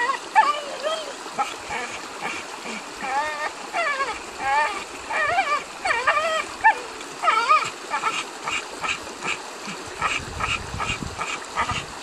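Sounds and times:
dog whining and whimpering: 0.0 - 8.2.

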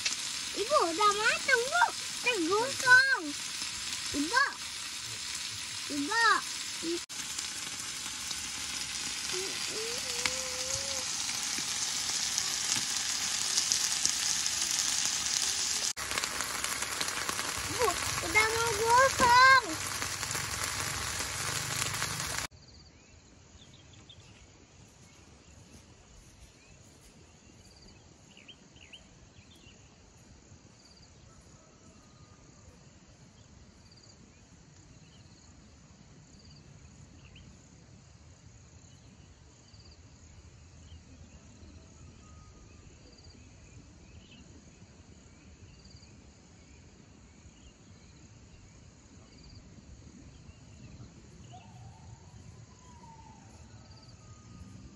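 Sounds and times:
loud steady hiss: 0.0 - 22.5
insects droning: 0.0 - 23.2
insect chirps: 0.0 - 23.7, 33.3 - 41.8, 42.5 - 54.9.

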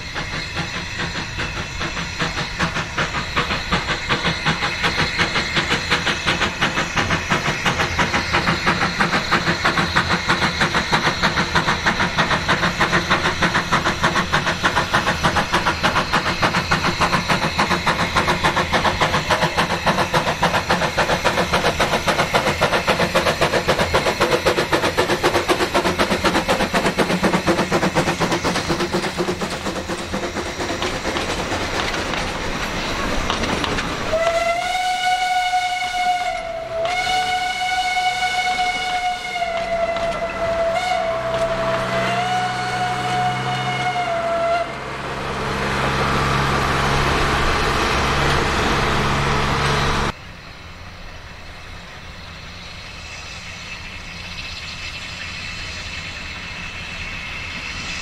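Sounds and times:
diesel locomotive engine hum: 0.0 - 58.0
steam engine chuffing: 0.0 - 58.0
train whistle blast: 34.1 - 44.9.

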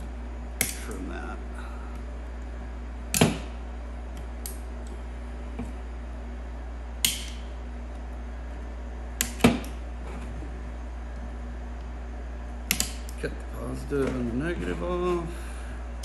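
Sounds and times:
steady low hum: 0.0 - 16.0
wire cutters snipping: 0.6 - 1.0, 7.0 - 7.5, 9.2 - 9.8, 12.7 - 13.2.

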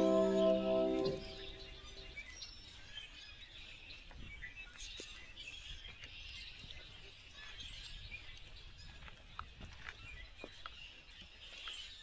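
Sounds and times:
distant birds chirping: 0.0 - 2.8.

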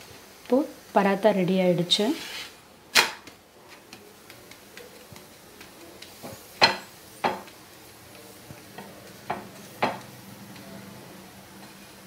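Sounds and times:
flatbread sizzling: 0.0 - 12.0
spatula knocking on griddle: 3.2 - 7.6, 8.5 - 10.1.

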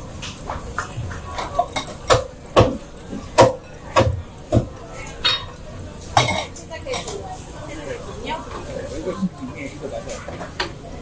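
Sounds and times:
steady background hum: 0.0 - 11.0
dishes and utensils clinking: 0.8 - 4.0, 5.0 - 7.4.

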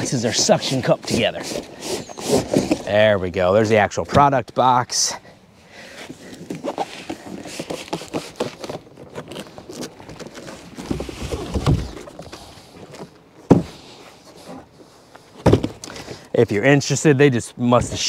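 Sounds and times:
cardboard boxes scraping and rustling: 0.0 - 3.2, 5.9 - 16.3.

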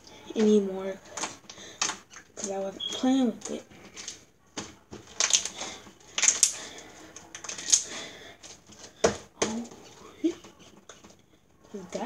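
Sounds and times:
slime popping and crackling: 0.4 - 8.0.

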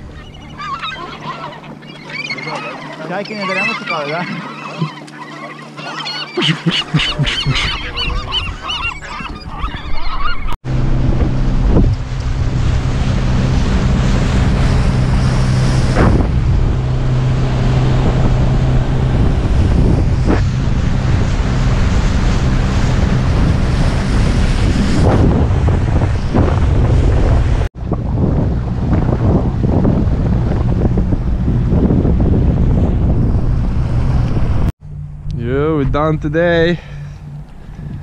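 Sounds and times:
water rushing in wake: 0.0 - 9.4, 10.6 - 34.7
gulls squabbling and calling: 0.0 - 10.6
outboard motor running: 0.0 - 38.0
wind buffeting microphone: 6.9 - 38.0.

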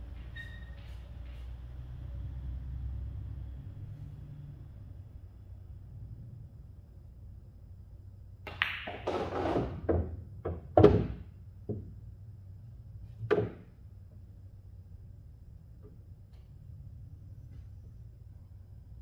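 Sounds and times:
pool balls knocking and thudding: 8.4 - 12.2, 13.0 - 14.3
cue tip clicking on ball: 8.5 - 9.3.

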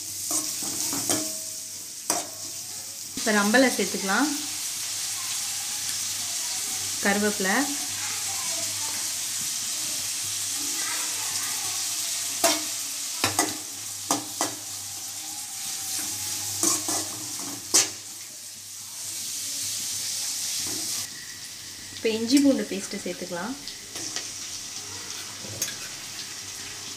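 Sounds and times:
onions sizzling in oil: 0.0 - 26.9
metal spoon clinking on pan: 0.3 - 2.5.

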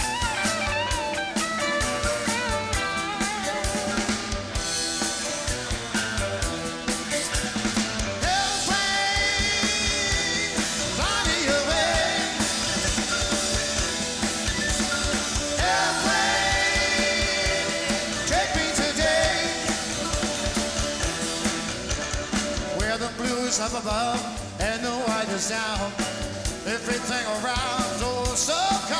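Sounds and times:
drum kit beat: 0.0 - 28.9
electric guitars: 0.0 - 28.9
sliding lead guitar melody: 0.0 - 28.9.

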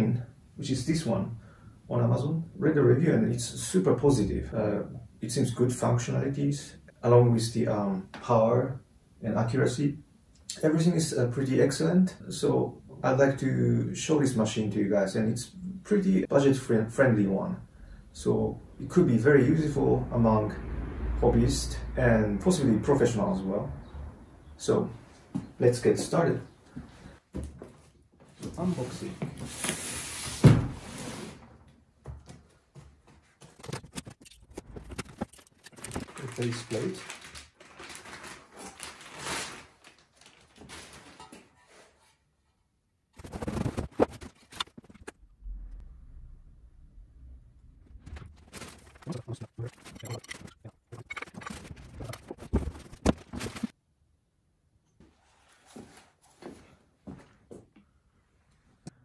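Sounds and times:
cardboard scraping: 28.6 - 31.6, 33.2 - 36.3, 43.2 - 45.2, 50.9 - 53.7
paper rustling: 33.1 - 42.0, 43.2 - 45.2, 48.0 - 53.7
packaging rustling: 33.3 - 41.6, 47.9 - 53.7.

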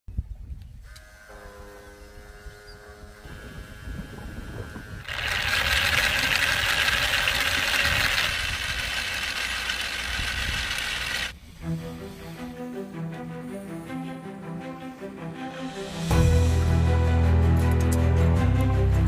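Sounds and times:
electric pump whining: 0.8 - 12.8.

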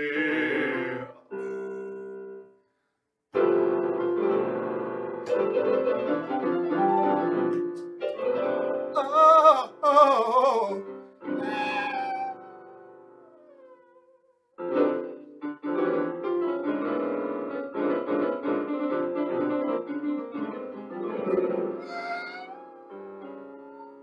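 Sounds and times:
man singing operatically: 0.0 - 2.0, 9.0 - 10.9
electronic keyboard piano chords: 3.4 - 9.2, 14.6 - 24.0.

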